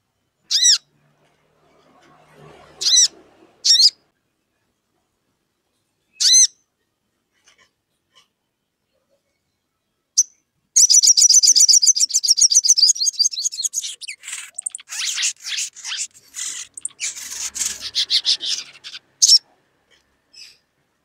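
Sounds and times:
bird scratchy chattering calls: 0:02.8 - 0:04.0, 0:10.8 - 0:19.5
bird chip and trill: 0:10.2 - 0:19.5.

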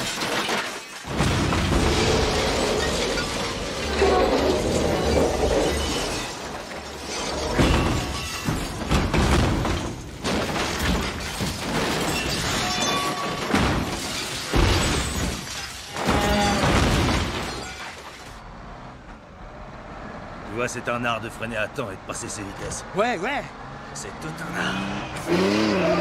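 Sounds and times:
truck crashing and breaking apart: 0:00.0 - 0:19.2.

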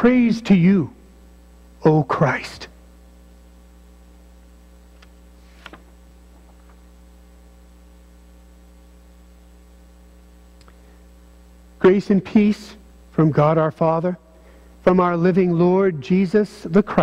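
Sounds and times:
electrical mains hum: 0:00.0 - 0:17.0
faint small clicks: 0:05.0 - 0:05.8, 0:10.6 - 0:10.8.

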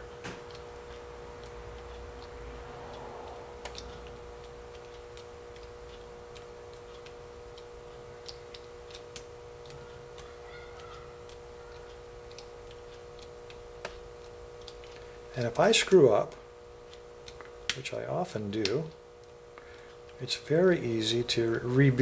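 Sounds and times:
steady hum: 0:00.0 - 0:22.0.

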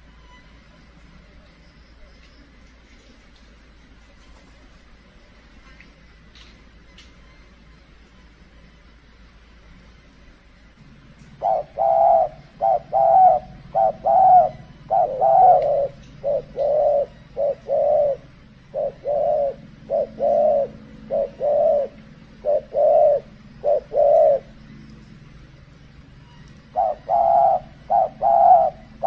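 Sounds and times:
dove cooing: 0:11.2 - 0:25.3, 0:26.2 - 0:29.0.

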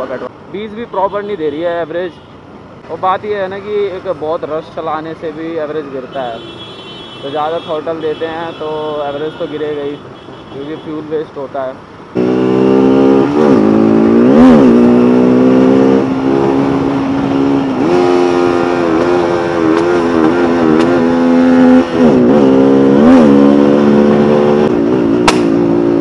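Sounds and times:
motorcycle engine at speed: 0:12.2 - 0:26.0.

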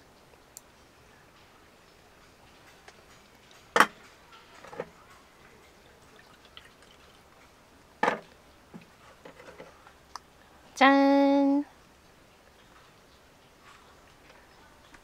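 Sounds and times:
light clicks and clinks: 0:01.4 - 0:06.2.

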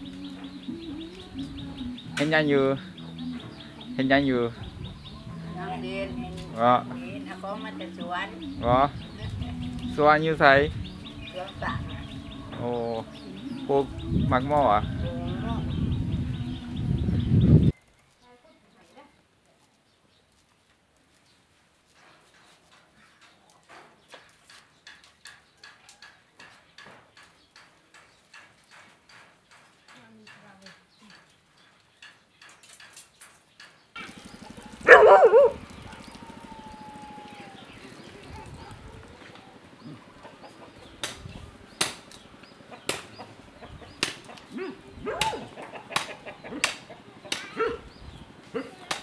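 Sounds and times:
chickens clucking: 0:34.0 - 0:49.0.

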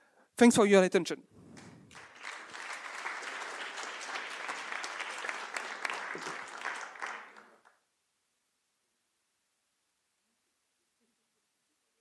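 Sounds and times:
audience applauding: 0:01.4 - 0:07.8.

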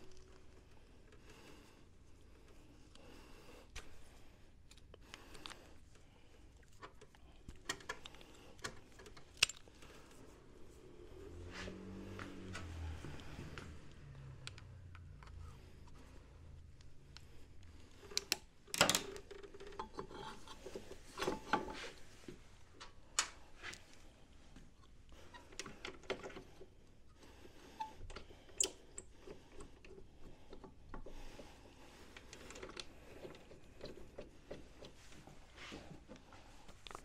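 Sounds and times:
tools clicking and knocking on metal: 0:18.1 - 0:21.8.

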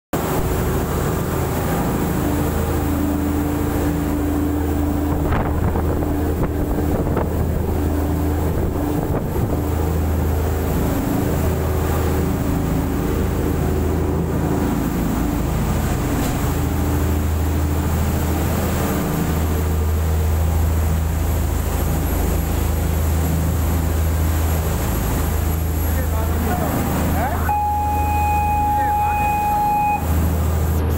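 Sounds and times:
boat engines droning: 0:00.2 - 0:30.9
water rushing: 0:00.2 - 0:30.9
wind buffeting microphone: 0:04.6 - 0:16.7.

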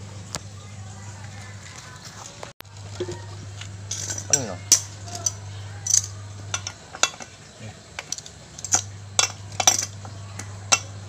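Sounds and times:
screwdriver clinking on metal: 0:02.9 - 0:11.0.

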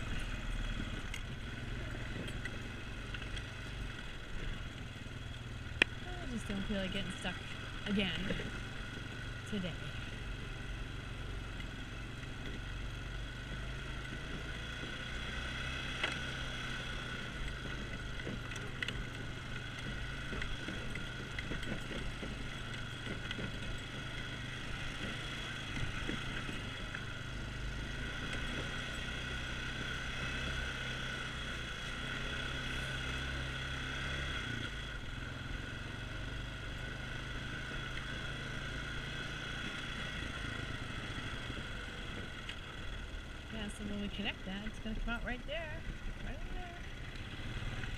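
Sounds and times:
atv engine running: 0:00.0 - 0:47.9.

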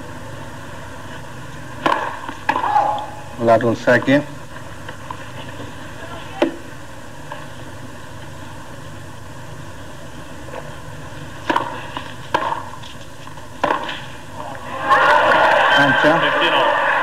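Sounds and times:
low hum and hiss: 0:00.0 - 0:17.0
tennis ball struck by rackets: 0:01.8 - 0:03.0, 0:11.4 - 0:13.0, 0:13.6 - 0:14.1.

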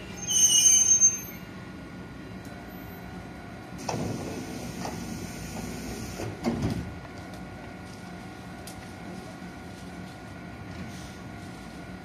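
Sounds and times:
standing train hum: 0:00.0 - 0:12.0
train doors sliding open: 0:03.8 - 0:07.0.

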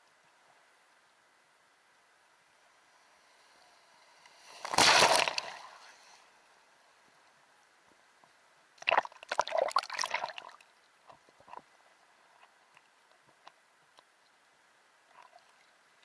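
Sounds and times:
small sea waves splashing: 0:03.0 - 0:06.3.

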